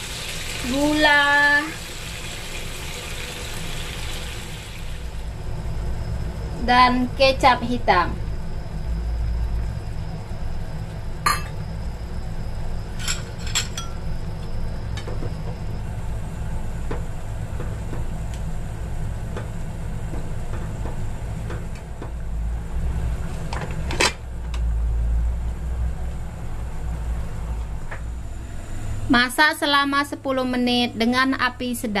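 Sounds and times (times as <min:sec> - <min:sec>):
sauce bubbling in a pan: 0:00.0 - 0:05.3.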